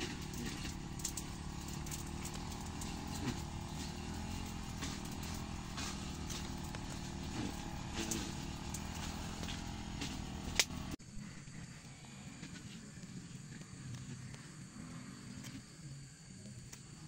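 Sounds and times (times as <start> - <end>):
papery wasp nest crackling: 0.0 - 11.0
low engine-like drone: 0.0 - 16.7.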